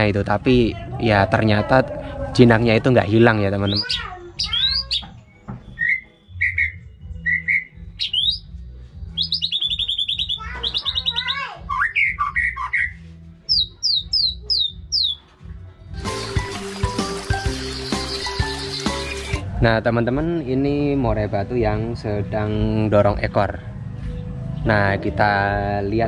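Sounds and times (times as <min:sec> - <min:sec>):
music: 0:00.0 - 0:26.0
bird singing whistled phrases: 0:03.6 - 0:08.5, 0:09.2 - 0:15.2.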